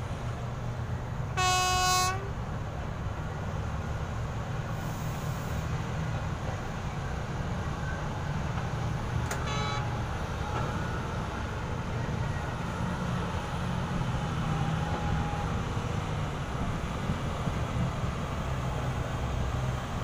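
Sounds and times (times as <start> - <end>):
diesel engines rumbling: 0.0 - 20.0
short horn toot: 9.4 - 9.8.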